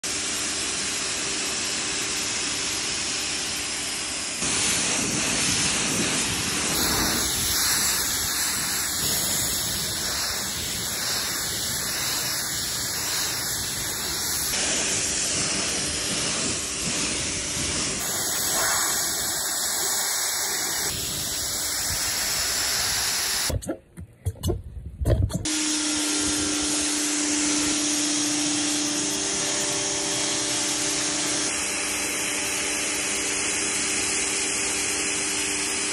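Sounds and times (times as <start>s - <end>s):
pressure washer spraying water: 0.0s - 23.5s, 25.5s - 35.9s.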